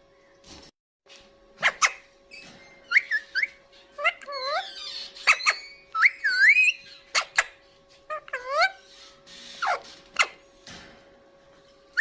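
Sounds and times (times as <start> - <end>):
parakeet whistled calls: 1.6 - 7.6.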